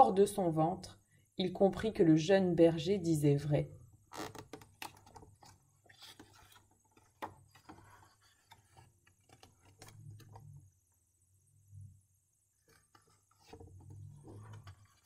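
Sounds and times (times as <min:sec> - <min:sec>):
book page turning: 0:04.1 - 0:10.5, 0:12.6 - 0:15.0.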